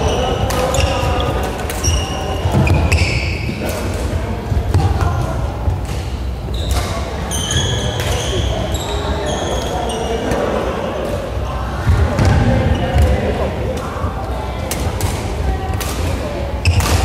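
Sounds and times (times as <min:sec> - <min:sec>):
sneakers squeaking on floor: 0:00.0 - 0:03.7, 0:04.5 - 0:11.5, 0:12.1 - 0:13.2, 0:16.6 - 0:17.0
voices chattering: 0:00.0 - 0:17.0
rackets hitting shuttlecock: 0:00.1 - 0:08.4, 0:14.6 - 0:17.0.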